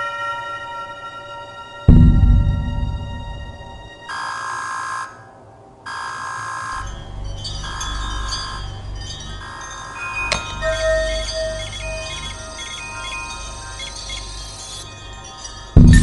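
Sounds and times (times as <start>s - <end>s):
bell-like chiming tones: 1.9s - 3.9s, 6.8s - 16.0s
low rumble: 1.9s - 3.9s, 15.8s - 16.0s.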